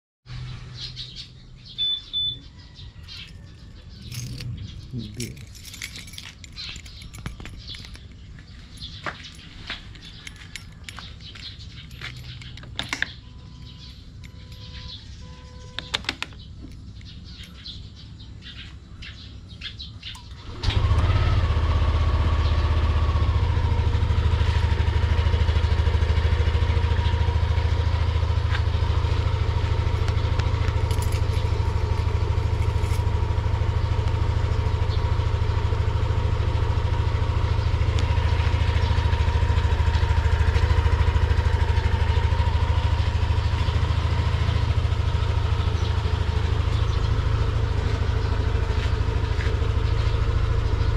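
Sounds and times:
scooter engine starting and idling: 1.8 - 18.6, 19.5 - 50.9.

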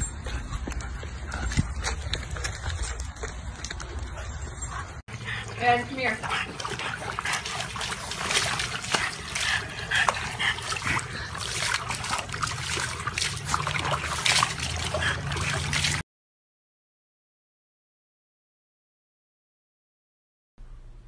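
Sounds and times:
water splashing in plastic tub: 5.6 - 16.0.

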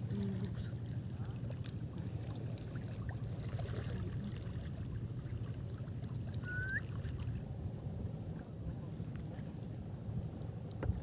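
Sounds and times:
faint small splashes: 0.0 - 7.6, 8.2 - 11.0
seawater sloshing and lapping: 0.0 - 11.0
short rising whistle: 6.4 - 6.9.

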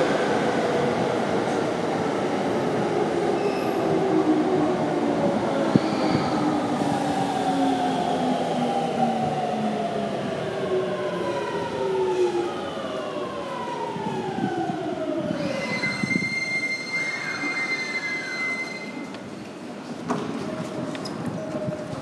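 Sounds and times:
high-pitched brake squeal: 5.8 - 6.5, 15.4 - 19.8.

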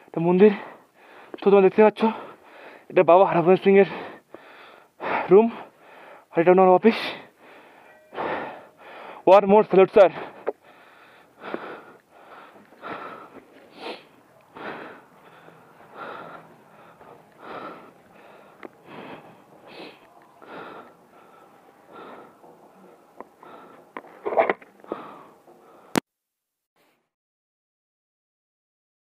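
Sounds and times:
person panting: 0.0 - 1.4, 2.0 - 2.9, 3.8 - 6.3, 6.9 - 9.3, 10.1 - 26.0.

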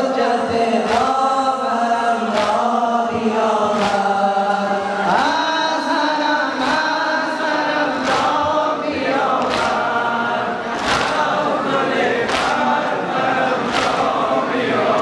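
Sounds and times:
crowd chanting: 0.0 - 15.0
collective chest-beats: 6.5 - 15.0.

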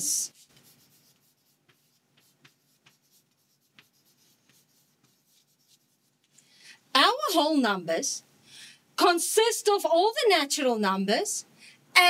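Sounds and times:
chalk writing on a chalkboard: 0.2 - 6.3.

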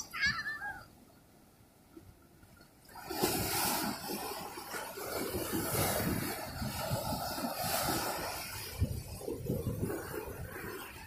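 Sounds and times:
ocean wave breaking: 2.8 - 11.0.

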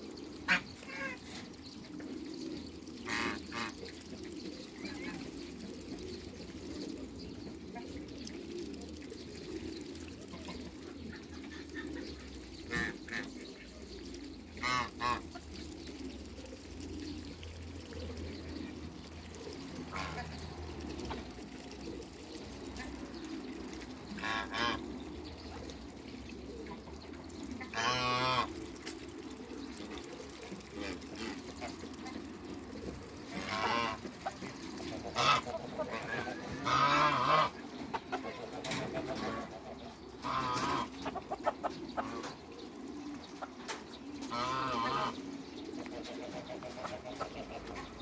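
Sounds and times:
farmyard fowl calling: 0.4 - 1.1, 3.0 - 3.8, 14.6 - 15.3, 24.2 - 24.8, 27.7 - 28.6, 33.4 - 42.4, 44.2 - 48.0.

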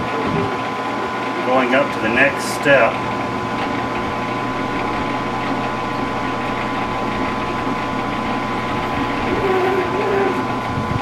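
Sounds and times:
lathe machine hum: 2.0 - 11.0
thin high tone: 3.5 - 10.7.

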